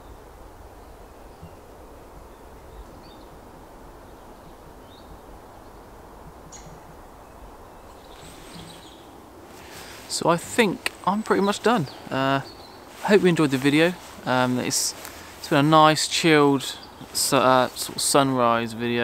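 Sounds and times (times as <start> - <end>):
faint bird chirps: 6.5 - 13.1.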